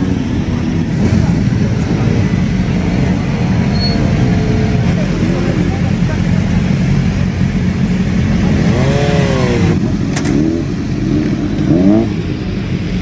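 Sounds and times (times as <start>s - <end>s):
motorcycle engines idling: 0.0s - 13.0s.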